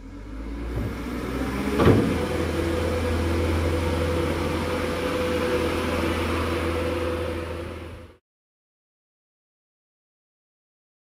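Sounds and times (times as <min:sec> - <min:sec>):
diesel engine running with whine: 0:00.0 - 0:08.2.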